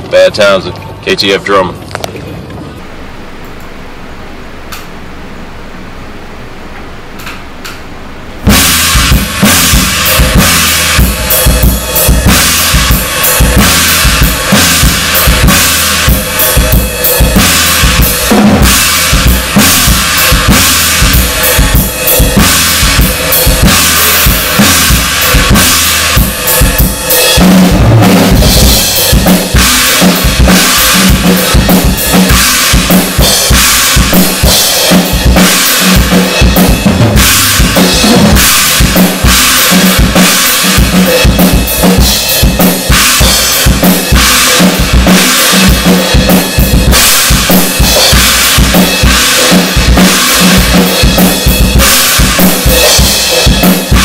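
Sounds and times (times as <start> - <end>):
heavy metal drum kit: 2.8 - 54.0.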